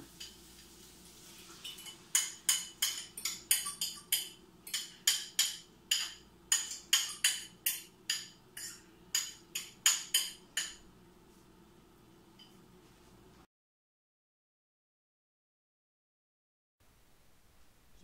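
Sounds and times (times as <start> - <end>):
fork clinking on metal pot: 1.6 - 10.8.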